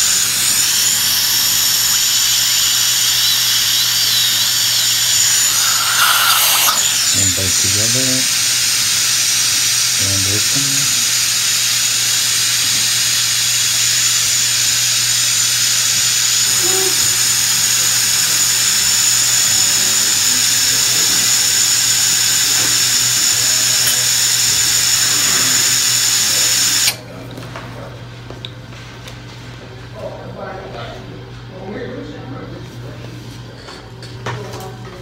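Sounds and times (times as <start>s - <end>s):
dental drill whining: 0.0s - 27.0s.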